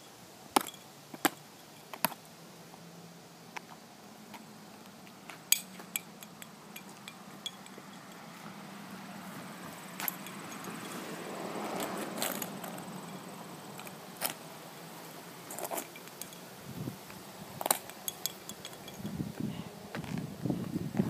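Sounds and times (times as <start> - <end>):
plastic pieces clicking on asphalt: 17.6 - 19.0.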